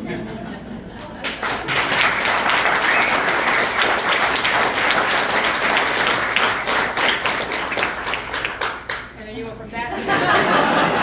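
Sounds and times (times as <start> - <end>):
audience applauding: 1.2 - 9.2.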